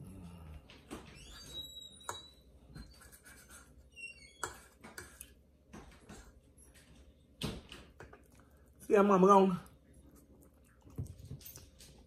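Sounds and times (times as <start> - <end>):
fork scraping a plate: 1.3 - 5.4.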